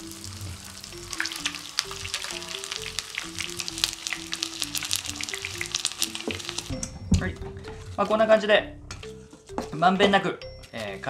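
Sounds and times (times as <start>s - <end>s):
chicken frying in oil: 0.0s - 6.7s
light background music: 0.0s - 11.0s.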